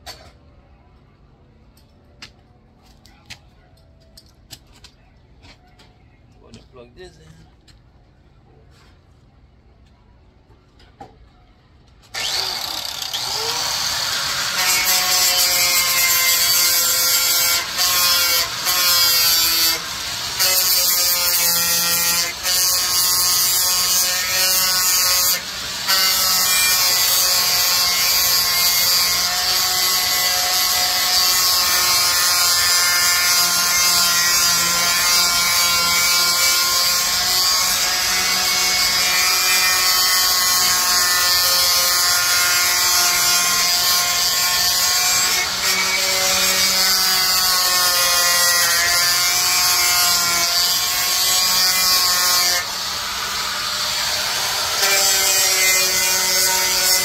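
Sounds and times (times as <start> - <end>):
electric drill boring through steel: 12.1 - 57.0.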